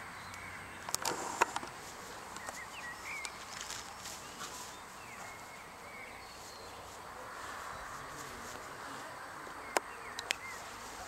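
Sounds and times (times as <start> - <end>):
sharp clicks: 0.3 - 2.6, 9.7 - 10.5.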